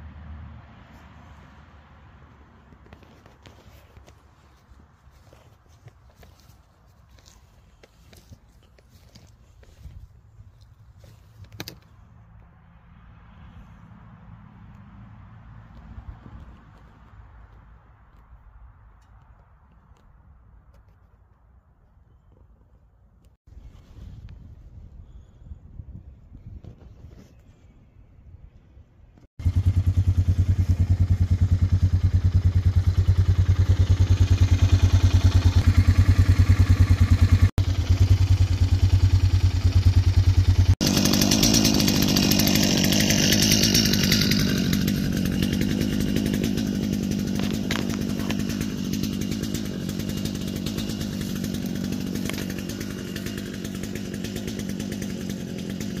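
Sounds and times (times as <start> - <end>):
small gasoline engine running: 29.4 - 56.0.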